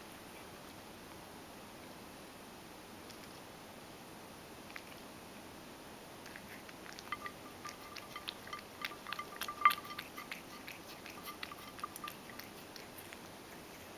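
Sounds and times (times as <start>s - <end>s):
cat crunching dry kibble: 6.2s - 13.9s
kibble clinking on metal bowl: 6.9s - 12.7s.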